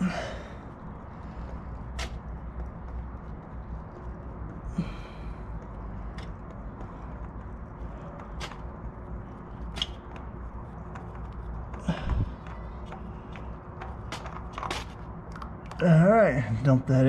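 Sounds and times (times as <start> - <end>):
steady low rumble: 0.0 - 17.0.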